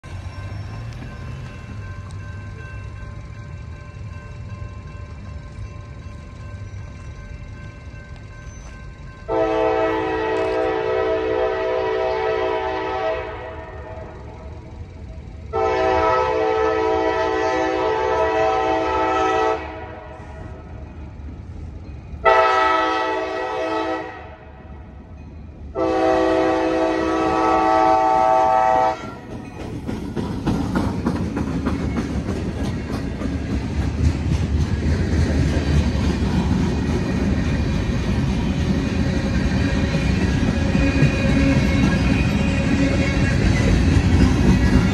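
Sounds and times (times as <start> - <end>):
freight train rumble and wheel clatter: 0.0 - 44.9
locomotive air horn: 9.3 - 14.3, 15.5 - 20.5, 22.2 - 24.6, 25.7 - 29.3.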